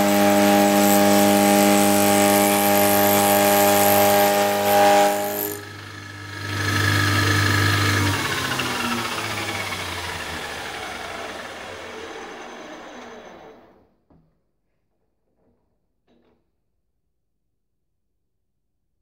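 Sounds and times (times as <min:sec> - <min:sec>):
milling machine cutting steel: 0:00.0 - 0:13.7
machine winding down: 0:00.0 - 0:13.9.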